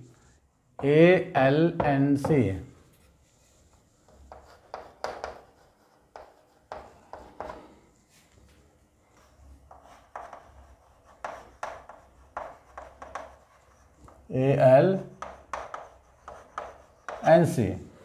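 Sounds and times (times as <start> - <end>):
chalk scratching on blackboard: 3.0 - 7.8, 9.1 - 17.6.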